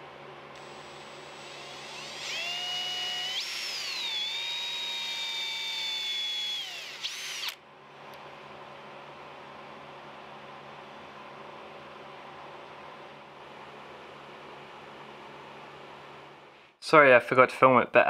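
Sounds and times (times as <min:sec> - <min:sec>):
electric drill motor whine: 0:00.6 - 0:07.6.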